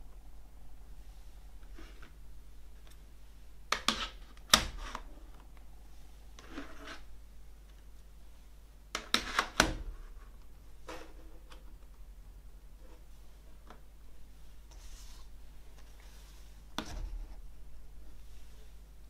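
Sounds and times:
soft sliding rub: 0.9 - 2.2, 14.4 - 18.9.

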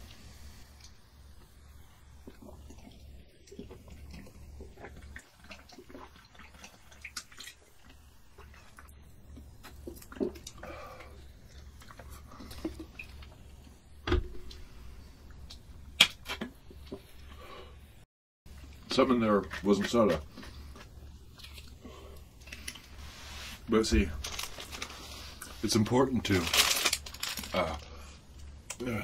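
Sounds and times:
person gulping and swallowing: 2.2 - 13.1
wet mouth and liquid sounds: 2.2 - 13.3, 20.8 - 22.9.

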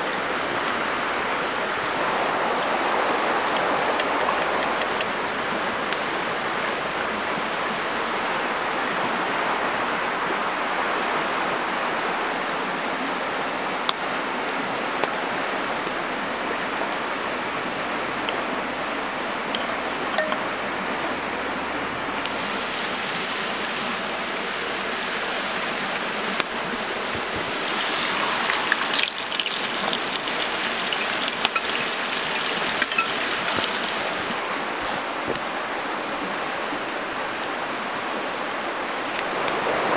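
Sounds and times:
campfire hissing and crackling: 0.0 - 39.9
food sizzling in a pan: 27.4 - 34.4.

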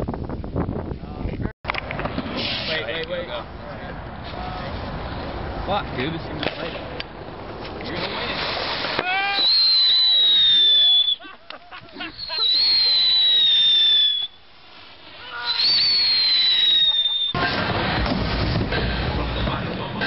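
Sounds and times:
fireworks crackling: 1.8 - 3.4, 6.4 - 20.0
fireworks whistling down in pitch: 9.0 - 11.3, 12.0 - 19.7.

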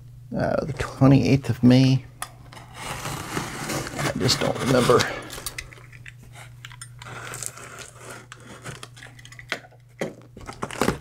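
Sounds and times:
tape and cardboard rustling: 2.5 - 11.0.

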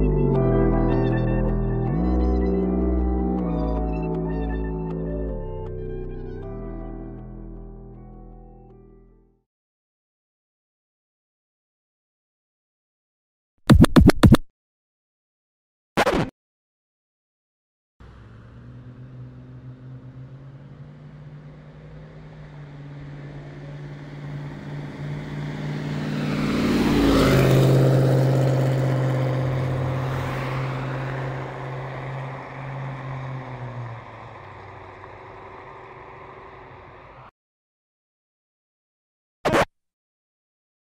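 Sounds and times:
car driving past: 18.0 - 37.3.

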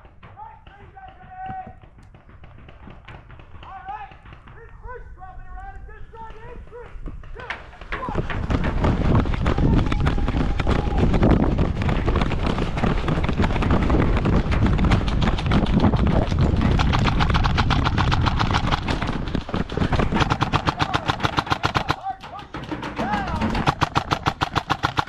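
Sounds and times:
heavy rumble: 7.9 - 21.7
airsoft guns firing full-auto: 16.4 - 25.0.

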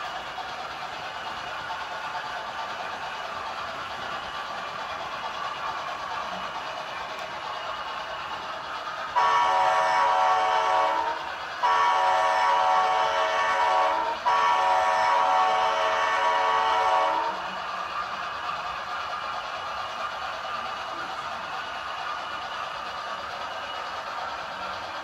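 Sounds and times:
model locomotive air horn blasts: 9.1 - 17.5.

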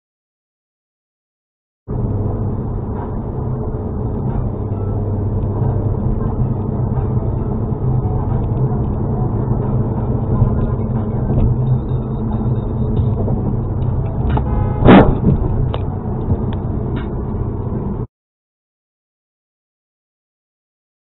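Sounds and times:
road and engine noise inside car: 1.9 - 18.1
car horn honk: 14.2 - 15.6.

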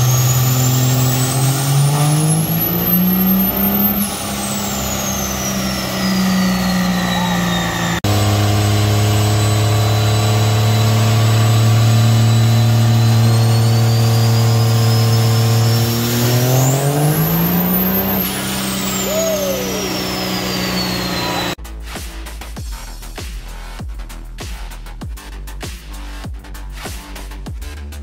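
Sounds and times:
diesel engine droning under load: 0.0 - 21.6
turbo whistle: 0.0 - 21.6.

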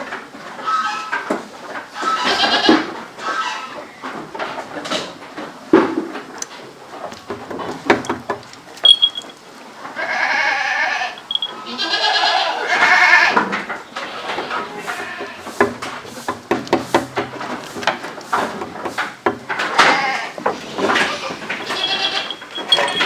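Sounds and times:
goats bleating: 1.9 - 3.7, 9.9 - 13.4, 14.0 - 15.5, 19.6 - 23.0.

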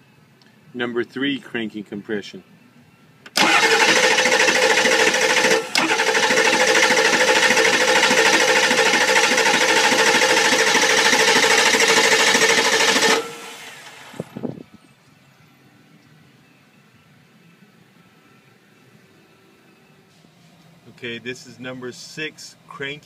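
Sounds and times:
diesel engine cranking on starter: 3.3 - 14.4.

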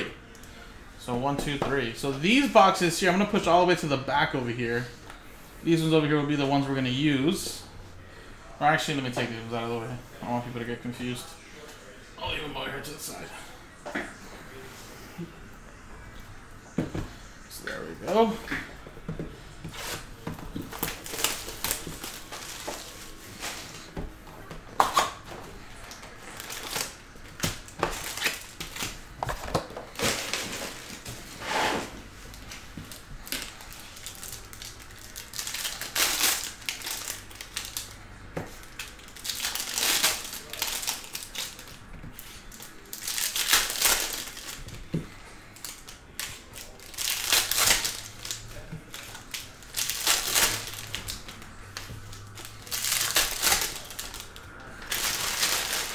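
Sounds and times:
wrappers crinkling: 19.7 - 24.0, 25.8 - 29.1, 29.8 - 55.9.

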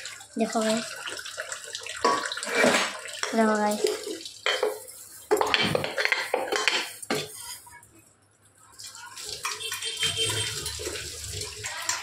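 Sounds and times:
tap water splashing on pot: 0.0 - 7.3, 8.8 - 12.0
steel utensils clattering in sink: 2.0 - 7.6.

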